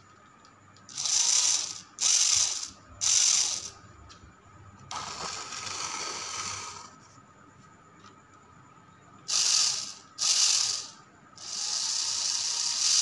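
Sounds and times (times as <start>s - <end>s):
small electric motor whirring: 0.9s - 3.8s, 4.9s - 7.0s, 9.3s - 13.0s.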